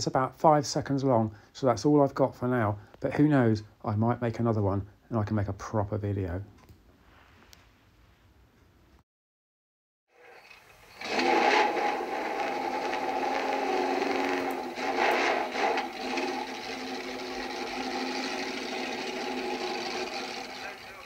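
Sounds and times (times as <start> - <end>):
motorcycle engine running: 11.0 - 21.0.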